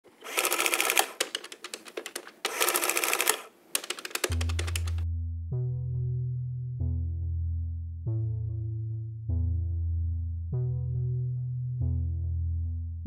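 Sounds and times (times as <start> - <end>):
typewriter-like clicking: 0.2 - 5.0.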